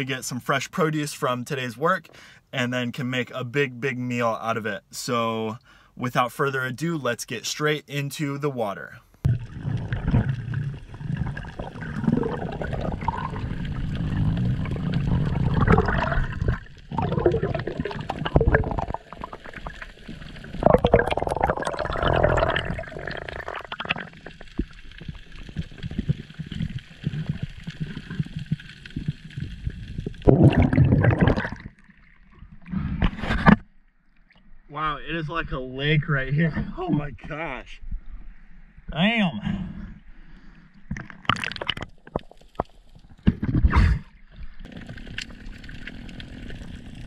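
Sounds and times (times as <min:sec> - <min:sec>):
bubbling water: 0:09.2 - 0:32.8, 0:40.9 - 0:47.0
seawater sloshing and gurgling: 0:09.2 - 0:33.6.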